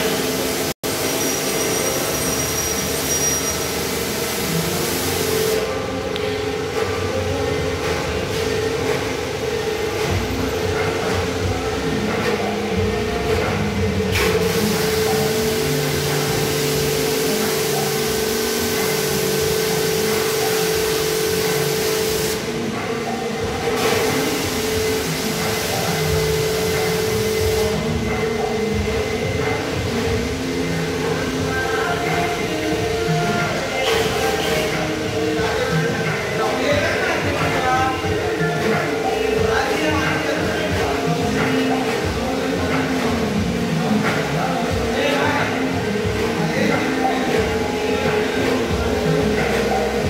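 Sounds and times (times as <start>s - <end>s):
hiss of water spray: 0.0s - 5.7s, 14.2s - 22.4s, 23.8s - 27.8s
pressure washer motor humming: 0.0s - 50.0s.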